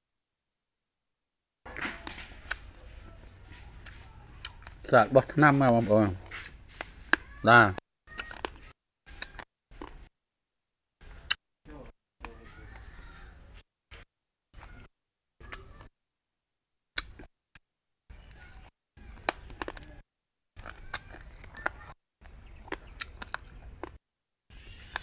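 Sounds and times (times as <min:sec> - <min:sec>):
person chewing crunchy nut: 0:01.7 - 0:03.0, 0:08.1 - 0:10.0, 0:19.0 - 0:20.0, 0:20.6 - 0:25.0.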